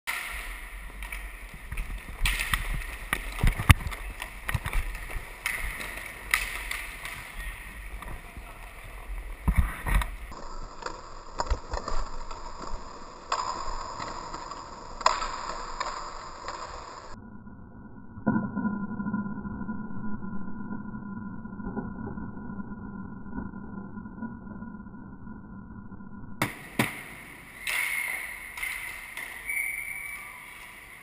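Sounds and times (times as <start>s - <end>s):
hockey sticks clacking: 0.1s - 17.2s, 26.4s - 31.0s
loud thuds: 26.4s - 29.0s.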